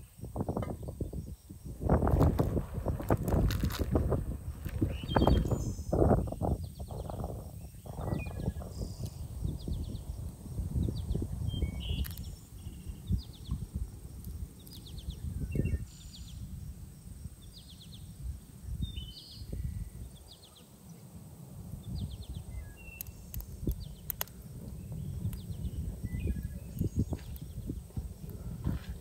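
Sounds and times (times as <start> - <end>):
birds chirping: 0.7 - 13.7, 14.4 - 16.5, 17.4 - 21.1, 21.8 - 28.6
low outdoor rumble: 1.7 - 15.4, 20.9 - 29.0
sharp clicks: 23.0 - 24.4.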